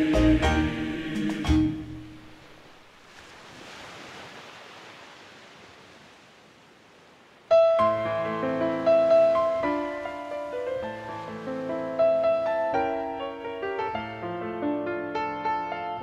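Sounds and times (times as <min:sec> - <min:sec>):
piano music: 0:00.0 - 0:02.2, 0:07.5 - 0:16.0
ocean surf rushing: 0:00.0 - 0:15.8.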